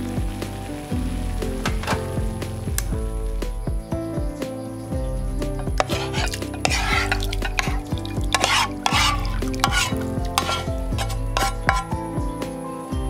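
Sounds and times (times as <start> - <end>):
background music: 0.0 - 13.0
food scraped out of a pan: 5.8 - 11.9.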